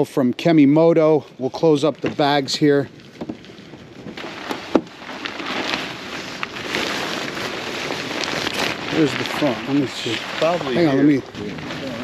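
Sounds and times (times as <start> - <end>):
fabric cover rustling: 1.8 - 12.0.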